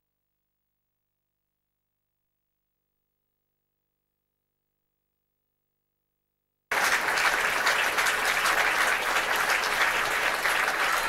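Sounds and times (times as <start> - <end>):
audience applauding: 6.7 - 11.0.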